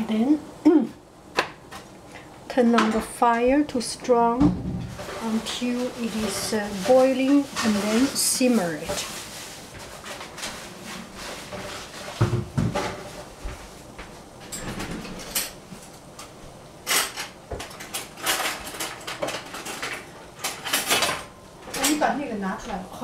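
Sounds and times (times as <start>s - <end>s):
metal pots and pans clattering: 4.5s - 9.1s, 11.2s - 13.2s.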